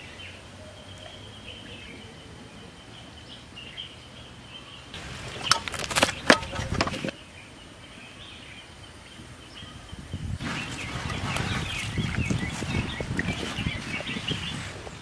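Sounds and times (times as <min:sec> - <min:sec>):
wood fire crackling: 0:05.0 - 0:07.1
fire snaps and knocks: 0:05.4 - 0:07.1.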